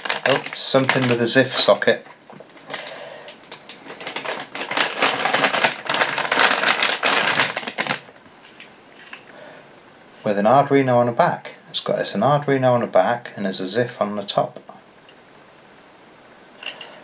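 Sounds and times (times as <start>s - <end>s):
packaging crinkling and rustling: 0.0s - 9.3s.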